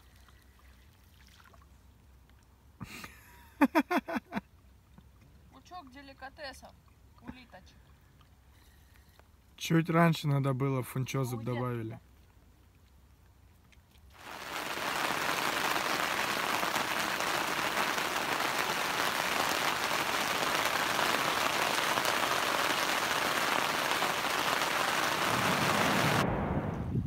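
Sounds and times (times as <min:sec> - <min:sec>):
rain on a tent: 0:00.0 - 0:00.6, 0:14.0 - 0:26.3.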